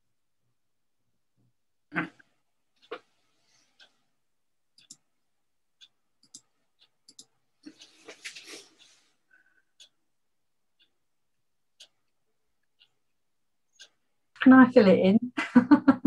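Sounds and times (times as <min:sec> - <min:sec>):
faint clicks: 0:04.8 - 0:05.1, 0:05.8 - 0:10.0
rustle of hands and clothing: 0:07.8 - 0:09.2.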